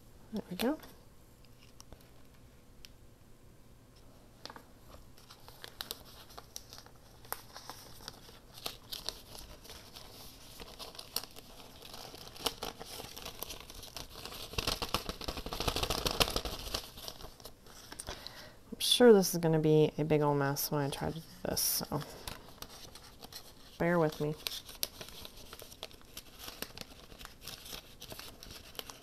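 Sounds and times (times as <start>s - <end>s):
paper crinkling and rustling: 4.4s - 18.3s, 20.9s - 29.0s.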